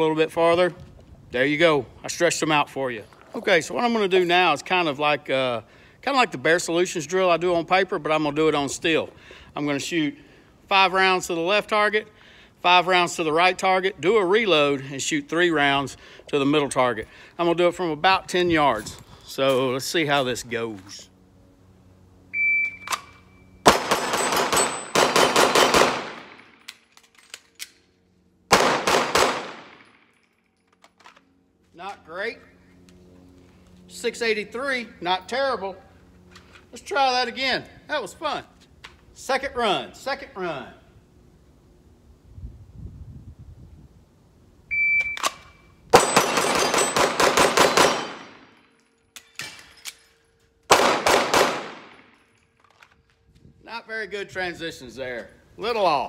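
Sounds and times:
pistol shots: 23.6 - 26.7, 28.5 - 30.0, 45.9 - 48.6, 50.7 - 52.1
shot timer beep: 44.7 - 45.6
bullets ringing on steel targets: 46.0 - 50.1.

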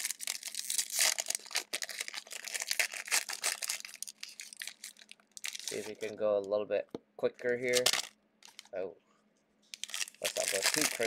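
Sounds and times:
plastic wrappers tearing and crinkling: 0.0 - 6.2, 7.5 - 8.7, 9.7 - 11.0.

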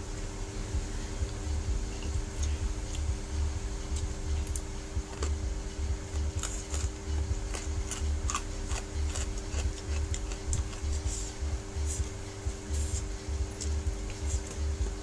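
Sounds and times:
low hum: 0.0 - 15.0
low thumping: 0.0 - 15.0
chewing noodles: 6.1 - 12.1.

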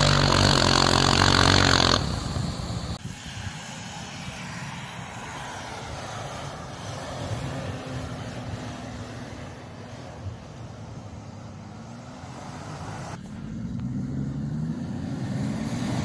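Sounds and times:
suv engine droning under load: 0.0 - 3.1.

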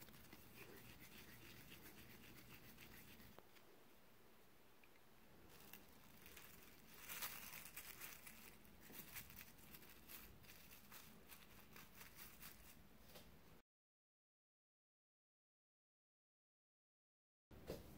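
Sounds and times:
plastic sheet crinkling: 5.5 - 12.8.

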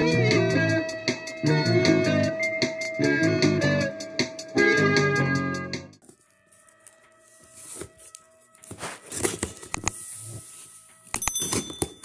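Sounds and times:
cardboard scraping and rustling: 6.1 - 10.8.

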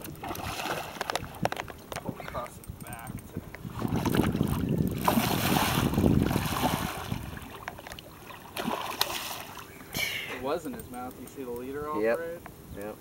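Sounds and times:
water splashing beside boat: 0.0 - 2.5, 3.2 - 9.9
wind on microphone: 0.0 - 7.7.

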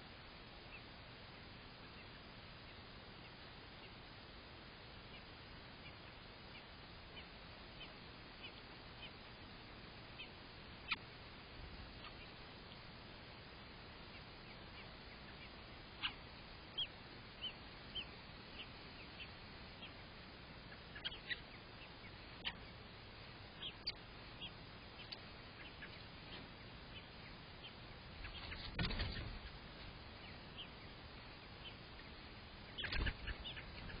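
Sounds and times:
faint hiss: 0.0 - 34.0
birds chirping: 5.0 - 34.0.

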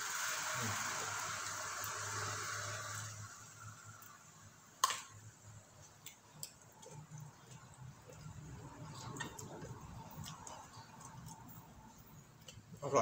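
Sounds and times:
steady hiss: 0.0 - 5.8
person chewing: 5.8 - 12.7.

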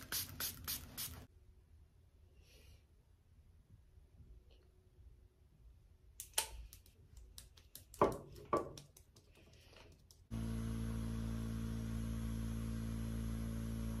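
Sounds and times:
fingertips tapping skin: 6.6 - 10.2.

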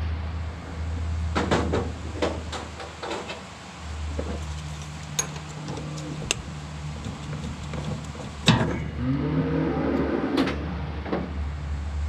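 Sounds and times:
steady low hum: 0.0 - 9.1
metal knocks and clanks: 4.2 - 8.8.

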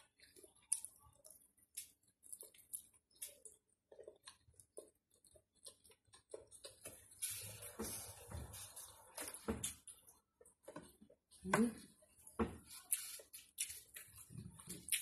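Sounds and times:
person chewing and slurping: 0.0 - 15.0.

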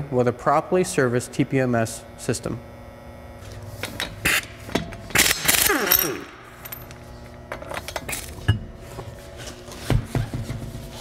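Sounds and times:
impact wrench spinning: 3.8 - 8.6.

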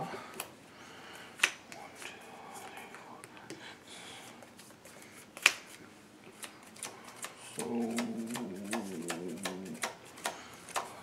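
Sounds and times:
cards clicking and tapping: 6.4 - 11.0
person humming: 7.6 - 9.9.

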